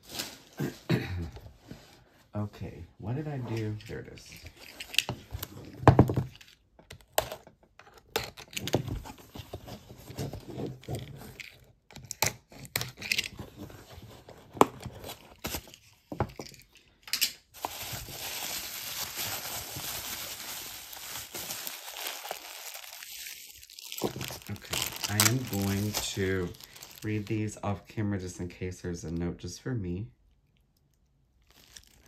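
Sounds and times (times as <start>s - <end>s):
packaging crinkling and tearing: 17.6s - 27.6s, 31.4s - 32.0s.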